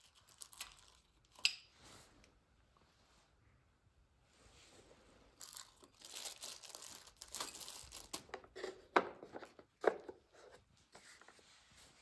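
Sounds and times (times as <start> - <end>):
plastic crinkling and scratching: 0.0 - 1.4, 5.3 - 11.5.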